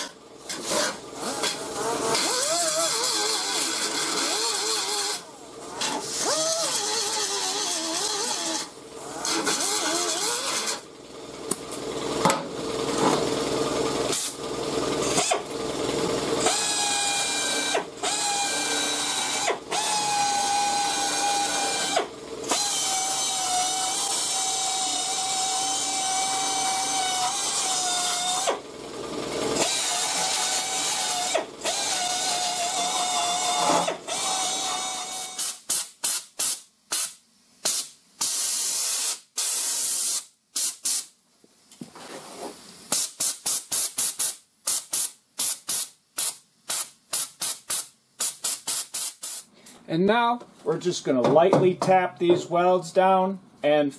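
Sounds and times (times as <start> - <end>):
drill with wire wheel whining: 0.4 - 10.9, 14.9 - 28.6, 29.4 - 35.6.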